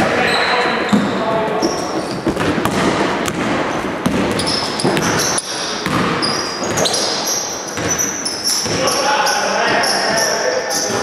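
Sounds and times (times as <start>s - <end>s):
shoes squeaking on hardwood: 0.2s - 3.0s, 3.7s - 11.0s
basketball bouncing: 0.9s - 8.9s.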